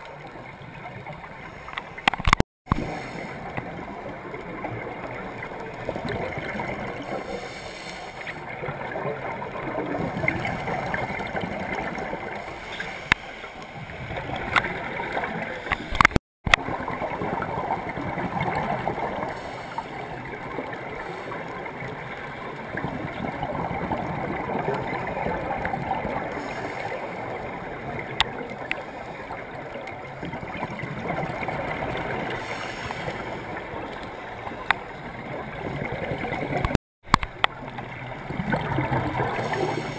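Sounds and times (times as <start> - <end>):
sharp clicks: 1.7 - 2.8.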